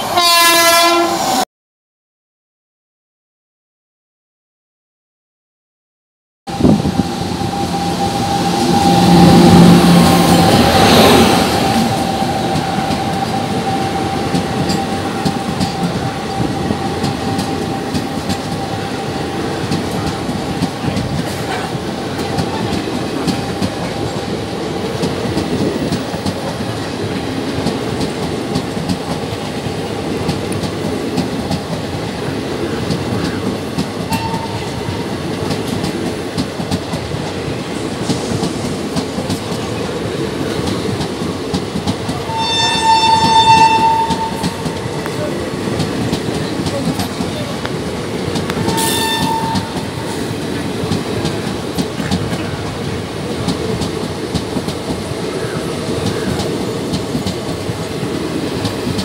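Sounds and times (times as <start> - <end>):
locomotive whine: 6.5 - 26.1, 42.0 - 53.8
electric locomotive passing: 6.5 - 59.0
train wheels clickety-clack: 6.6 - 59.0.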